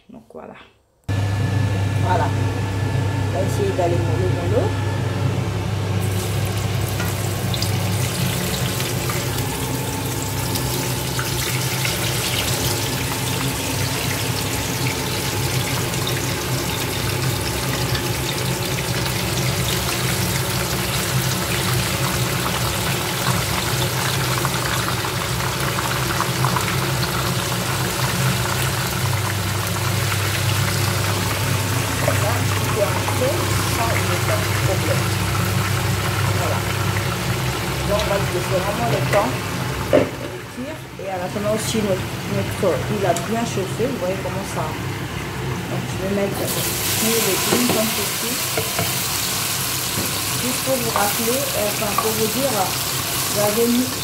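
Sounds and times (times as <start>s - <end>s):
fish sizzling in hot oil: 6.0s - 40.1s, 46.4s - 54.0s.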